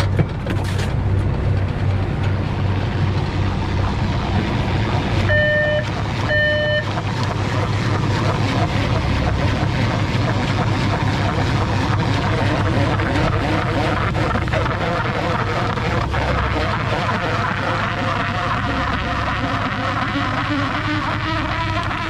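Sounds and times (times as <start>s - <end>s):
boat engine droning: 0.0s - 22.0s
short electronic beeps: 5.3s - 7.0s.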